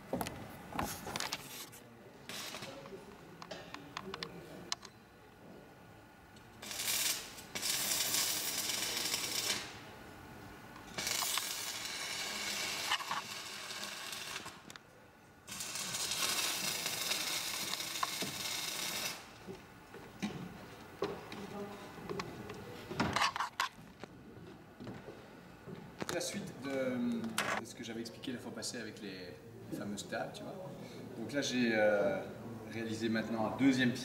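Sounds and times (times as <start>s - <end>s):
arc welding hiss: 2.3s - 3.0s, 6.5s - 10.0s, 10.8s - 14.7s, 15.4s - 19.5s.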